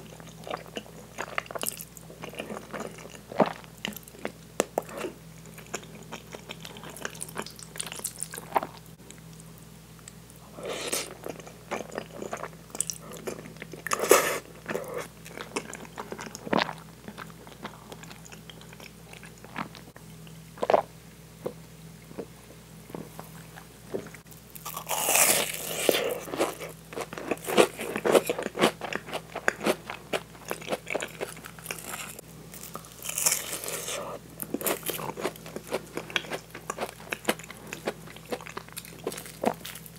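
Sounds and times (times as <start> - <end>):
chewing spaghetti: 0.0 - 9.2, 10.7 - 20.0, 22.9 - 39.9
crunching bite into croquette: 24.6 - 29.8.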